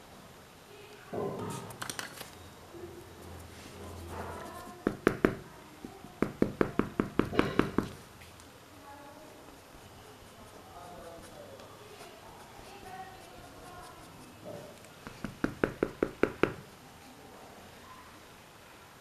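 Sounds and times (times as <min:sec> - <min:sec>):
faint voices: 0:08.3 - 0:15.0.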